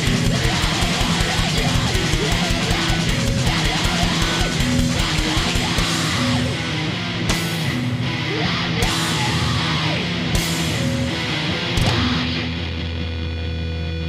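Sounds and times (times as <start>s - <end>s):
fast kick-drum beats: 0.0s - 6.5s
distorted electric guitars: 0.0s - 14.0s.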